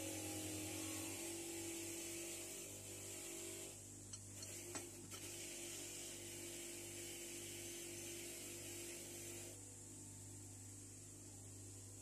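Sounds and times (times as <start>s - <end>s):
bench grinder motor hum: 0.0s - 3.8s.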